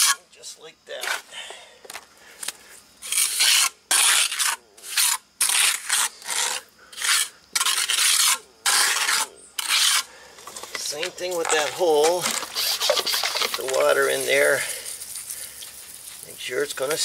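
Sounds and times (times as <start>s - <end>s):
trowel scraping cement: 0.0s - 0.2s, 3.0s - 14.4s.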